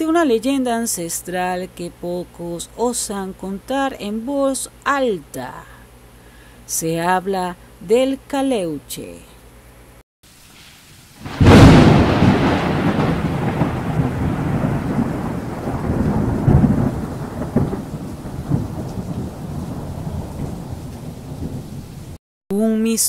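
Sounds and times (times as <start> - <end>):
steady rain: 10.3 - 22.2
thunder crack and rumble: 11.2 - 22.2.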